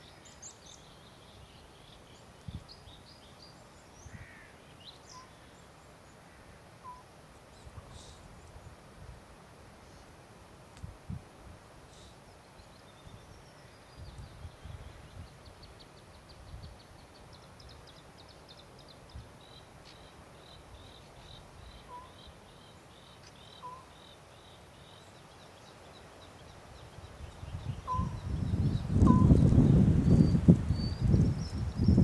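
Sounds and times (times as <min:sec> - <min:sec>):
low bird calls: 0:00.0 - 0:08.8, 0:11.9 - 0:32.0
wind rumble on microphone: 0:02.4 - 0:02.9, 0:10.8 - 0:11.6, 0:13.1 - 0:15.5, 0:26.8 - 0:32.0
songbird singing high notes: 0:19.5 - 0:25.0, 0:27.3 - 0:32.0.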